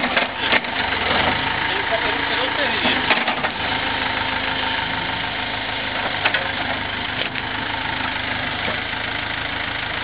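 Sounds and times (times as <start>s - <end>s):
excavator diesel engine running: 0.0s - 10.0s.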